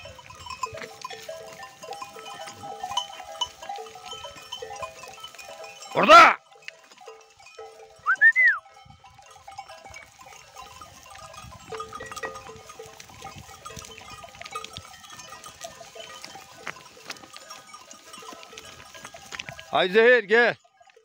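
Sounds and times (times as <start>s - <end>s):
sheep bells clinking: 0.0s - 21.0s
rising and falling whistle: 8.1s - 8.6s.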